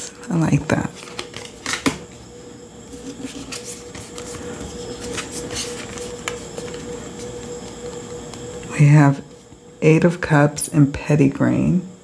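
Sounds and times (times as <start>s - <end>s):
faint hum: 0.0s - 12.0s
cards clicking and sliding: 1.0s - 2.1s, 2.9s - 8.4s.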